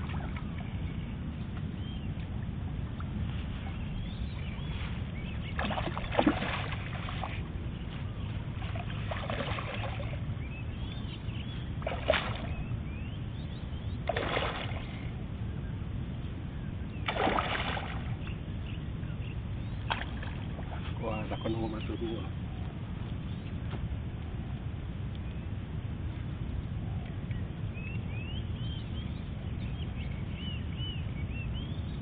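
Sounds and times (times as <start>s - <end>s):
steady low rumble: 0.0s - 32.0s
fish splashing at water surface: 5.6s - 7.4s, 8.6s - 10.2s, 11.8s - 12.6s, 14.1s - 15.0s, 17.1s - 18.2s.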